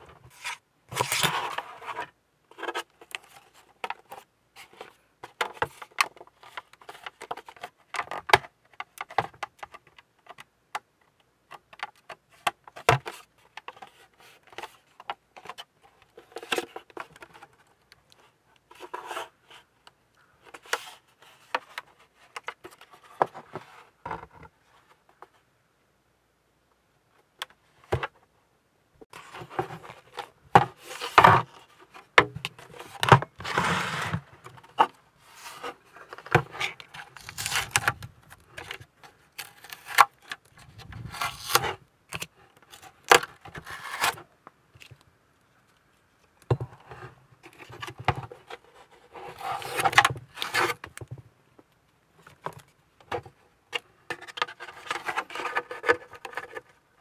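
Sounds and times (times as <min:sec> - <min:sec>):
masking tape tearing: 0:37.2 - 0:37.8.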